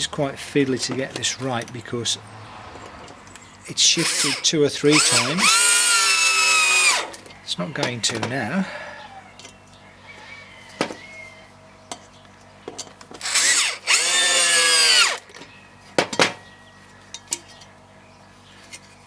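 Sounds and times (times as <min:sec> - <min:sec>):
electric drill driving screw: 0:04.0 - 0:07.1, 0:13.2 - 0:15.2
drill and parts knocking: 0:13.1 - 0:15.2.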